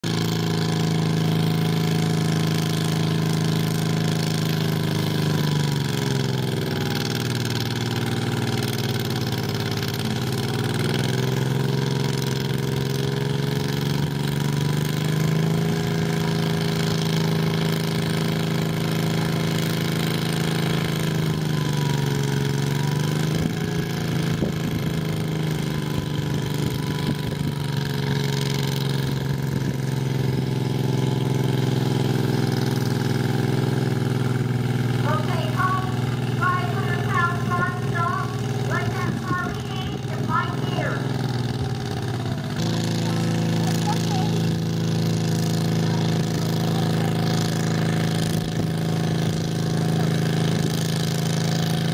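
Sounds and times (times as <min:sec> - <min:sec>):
tractor engine straining under load: 0:00.0 - 0:35.2.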